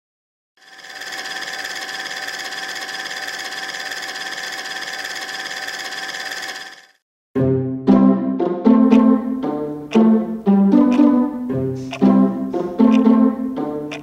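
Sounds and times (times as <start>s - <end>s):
steady mechanical whir: 0.6s - 7.0s.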